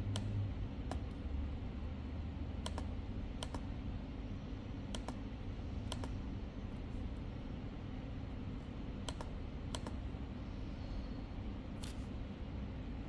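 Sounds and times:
low steady hum: 0.0 - 13.0
laptop clicks: 2.6 - 3.7, 4.9 - 5.2, 9.0 - 10.0.

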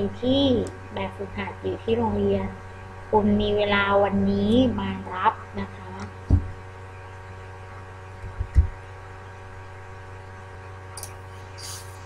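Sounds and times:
electrical hum with hiss: 0.0 - 12.0
short low thump: 6.3 - 6.6.

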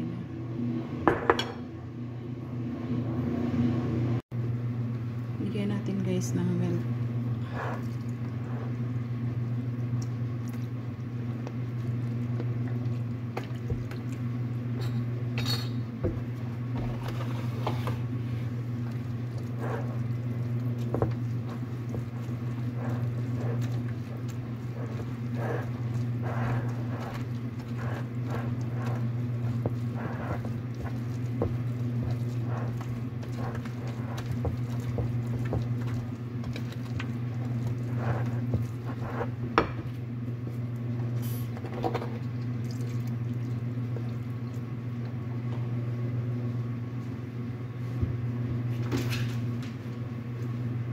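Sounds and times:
pastry blender scraping glass bowl: 19.4 - 39.4.

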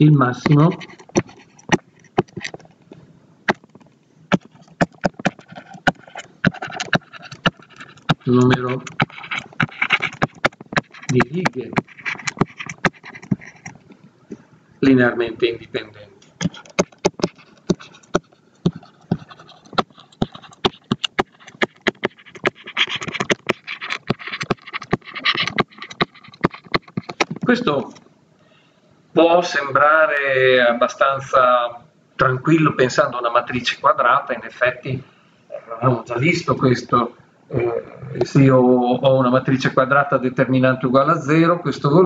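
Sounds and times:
stylus tapping on tablet screen: 3.5 - 14.0, 16.3 - 27.6.

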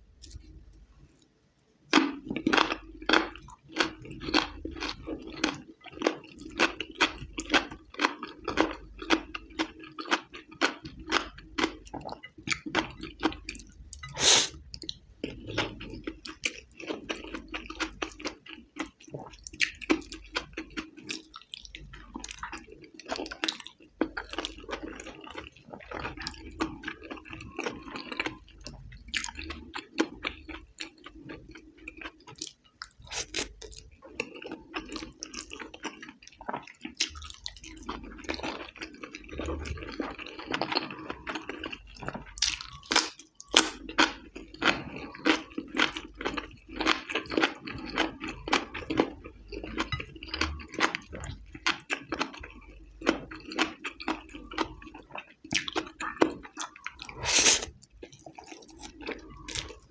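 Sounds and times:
person chewing with lip smacks: 49.8 - 59.9.

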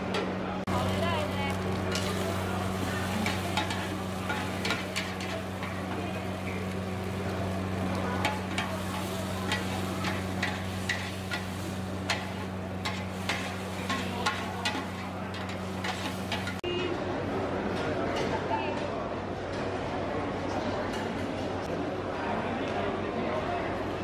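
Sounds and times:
food sizzling: 0.7 - 16.6
metal spatulas scraping a wok: 1.7 - 6.8, 8.2 - 16.6.

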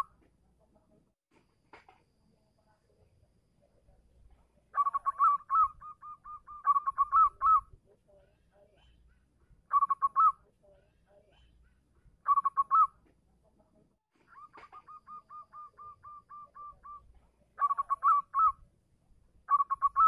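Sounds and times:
dove cooing song: 4.7 - 7.7, 9.7 - 10.4, 12.2 - 12.9, 14.2 - 17.0, 17.6 - 18.6, 19.5 - 20.0.

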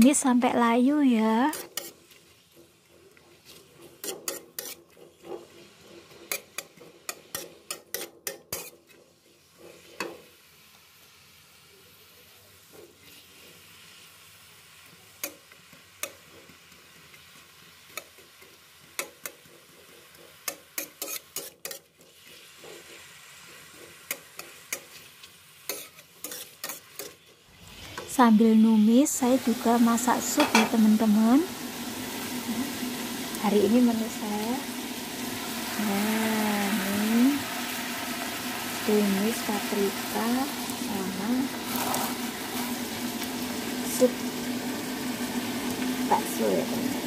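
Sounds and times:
onions sizzling in oil: 0.0 - 47.0
metal spoon scraping a wok: 1.4 - 10.4, 15.2 - 28.1, 29.5 - 31.1, 39.2 - 43.2.

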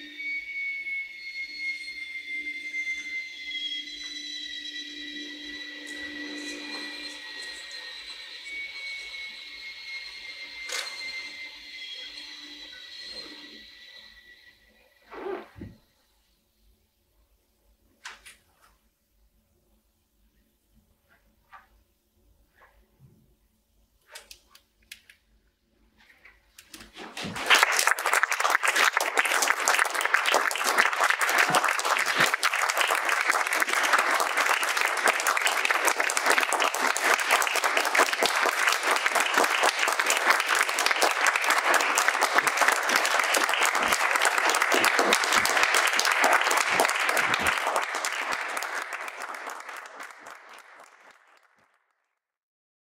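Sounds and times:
audience applauding: 27.2 - 51.9.

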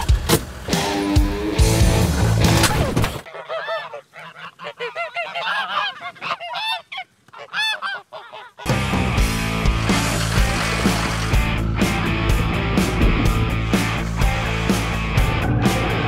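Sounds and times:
music: 0.0 - 3.0, 8.7 - 16.0
geese honking: 3.2 - 16.0.

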